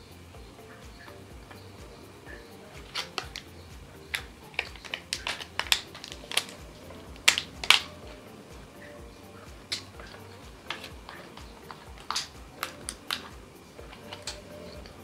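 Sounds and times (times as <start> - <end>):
plastic wrapper crinkling: 4.1 - 8.2.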